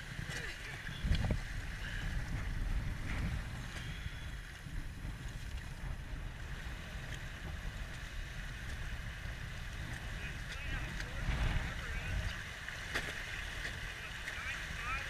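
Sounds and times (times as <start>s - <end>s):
wind buffeting microphone: 0.0s - 15.0s
river water rushing: 10.0s - 15.0s.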